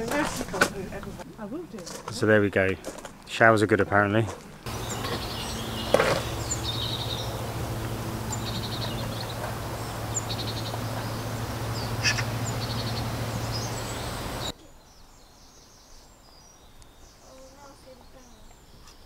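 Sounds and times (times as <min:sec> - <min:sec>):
small birds chirping: 0:03.4 - 0:19.0
steady low hum: 0:04.6 - 0:14.5.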